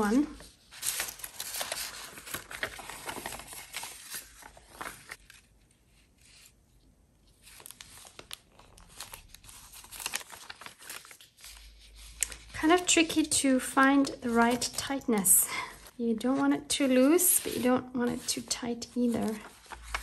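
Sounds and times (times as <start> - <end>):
paper rustling and crinkling: 0.0 - 20.0.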